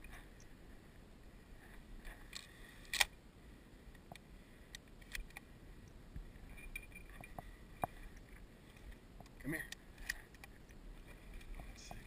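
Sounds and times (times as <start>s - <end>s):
faint clicks and light taps: 3.9s - 12.0s.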